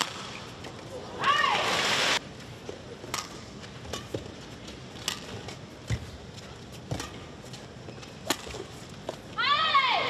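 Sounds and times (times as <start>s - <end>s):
rackets striking shuttlecock: 3.1s - 4.4s, 5.0s - 6.0s, 8.0s - 9.2s.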